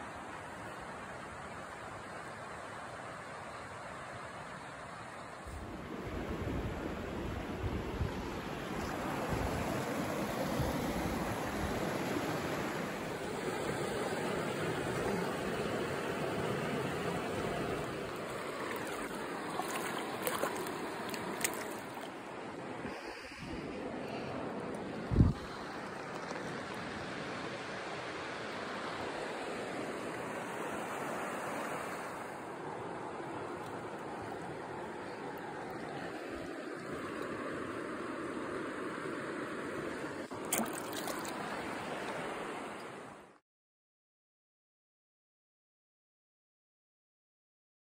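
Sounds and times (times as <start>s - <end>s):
flowing stream water: 0.0s - 43.4s
wind buffeting microphone: 25.0s - 25.6s.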